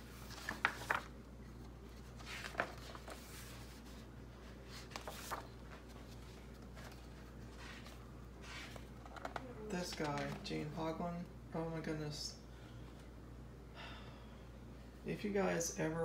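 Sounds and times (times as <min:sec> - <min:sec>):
pages turning: 0:00.0 - 0:10.7
low steady hum: 0:00.0 - 0:16.0.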